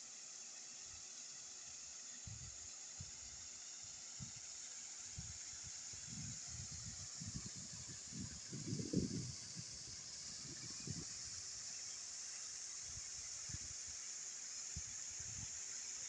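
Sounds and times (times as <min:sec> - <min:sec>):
wind rumble on microphone: 0:05.2 - 0:11.4.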